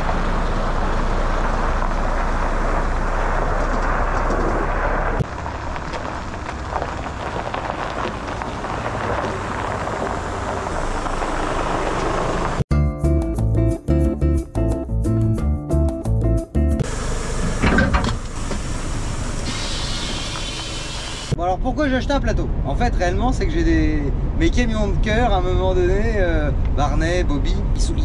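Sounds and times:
truck engine running: 0.0 - 12.6, 16.8 - 21.4.

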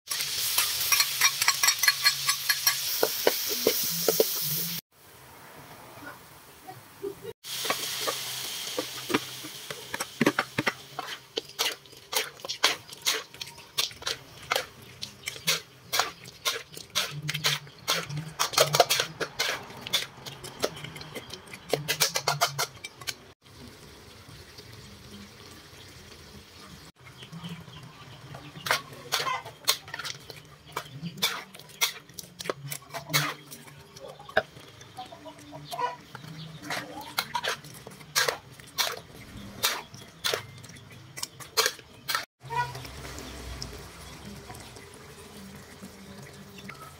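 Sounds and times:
spatula scraping a steel wok: 0.1 - 4.8, 7.5 - 23.2, 28.6 - 33.9, 36.2 - 40.6
sizzling hiss from hot pan: 0.1 - 5.1, 7.4 - 12.3.

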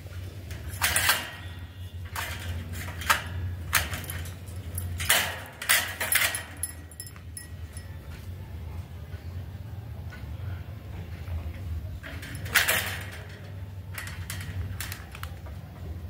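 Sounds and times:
wire birdcage bars rattling: 0.2 - 8.0, 12.0 - 15.4.

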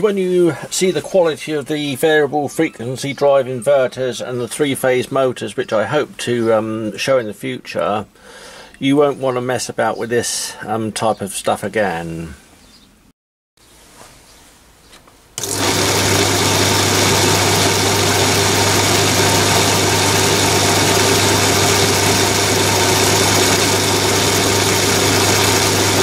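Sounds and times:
belt and pulleys whirring: 15.4 - 26.0
lathe motor hum: 15.4 - 26.0.

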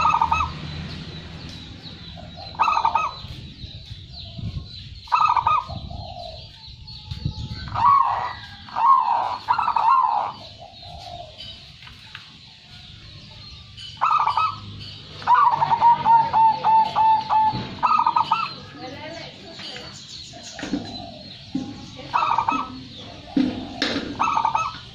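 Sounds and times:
dove cooing: 0.0 - 0.6, 2.2 - 3.6, 5.1 - 6.5, 7.6 - 11.6, 14.0 - 14.6, 15.2 - 18.7, 22.1 - 24.9.

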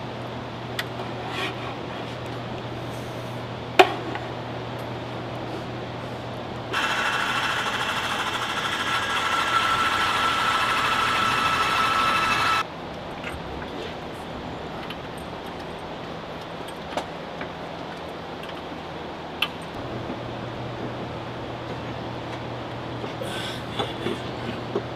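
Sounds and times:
machine whining loudly: 6.7 - 12.6.

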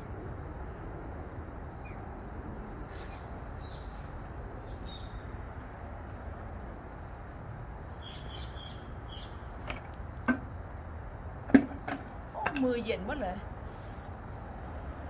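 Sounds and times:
outdoor hush: 0.0 - 15.0
plastic bucket knocking on paving: 11.5 - 12.6.

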